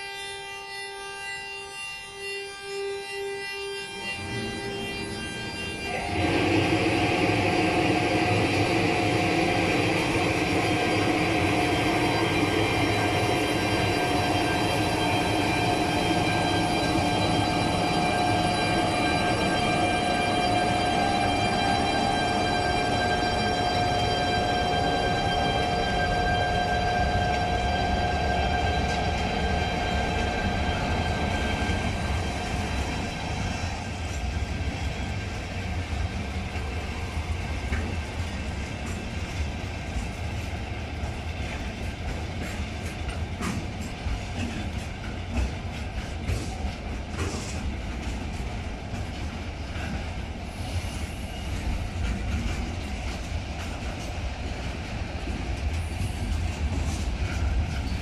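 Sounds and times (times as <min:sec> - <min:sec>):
locomotive whine: 0:00.0 - 0:58.0
freight train rumble: 0:03.8 - 0:58.0.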